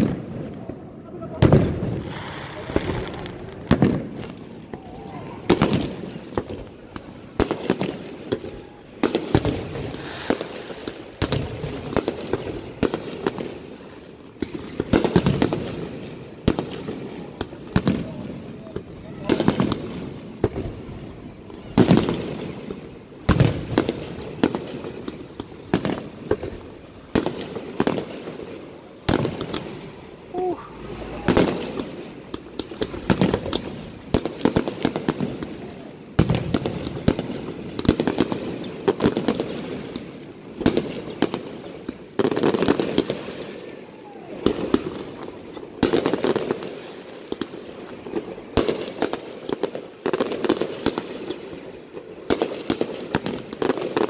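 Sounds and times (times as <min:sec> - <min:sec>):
echoing rumble: 0:30.2 - 0:33.2.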